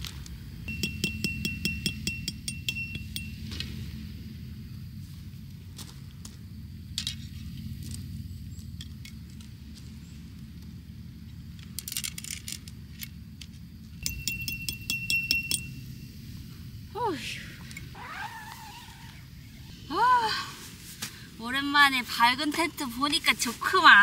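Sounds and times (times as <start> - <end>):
ringing metallic taps: 0.7 - 3.6, 14.0 - 16.0
tent pegs clinking on gravel: 5.7 - 16.1.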